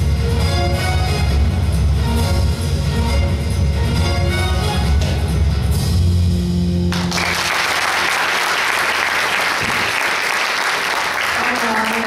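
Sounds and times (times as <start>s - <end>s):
audience applause: 6.9s - 12.0s.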